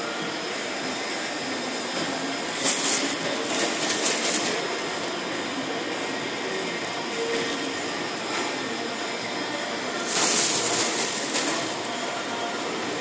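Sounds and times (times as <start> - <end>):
vacuum blower rushing and whining: 0.0 - 13.0
plastic film crackling: 2.6 - 4.9, 10.0 - 11.9.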